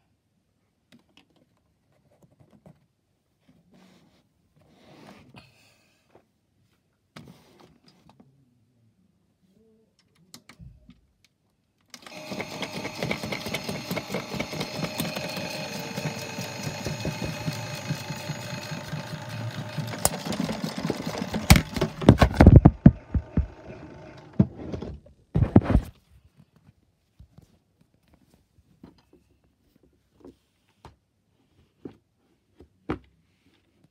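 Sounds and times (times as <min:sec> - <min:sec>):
toy washing machine motor whirring: 0:12.0 - 0:24.6
drum rattling: 0:12.7 - 0:23.7.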